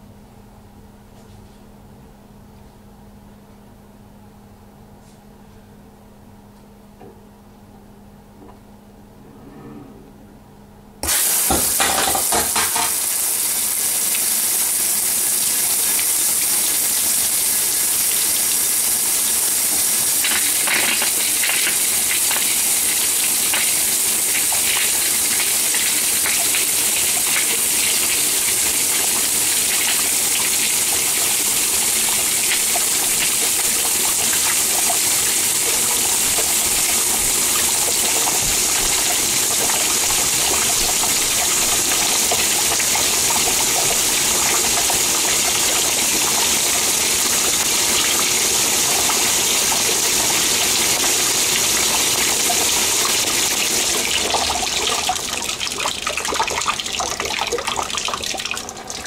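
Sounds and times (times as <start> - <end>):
water jet hissing rush: 11.0 - 54.3.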